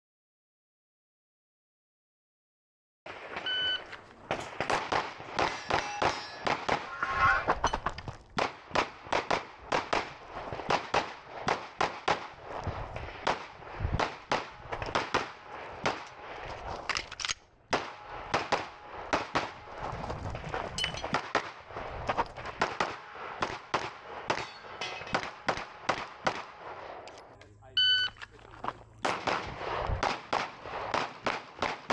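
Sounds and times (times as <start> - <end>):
pistol shots: 4.3 - 7.0, 8.4 - 16.4, 17.7 - 19.7, 22.4 - 27.0, 29.0 - 31.9
shot timer beep: 27.8 - 28.2.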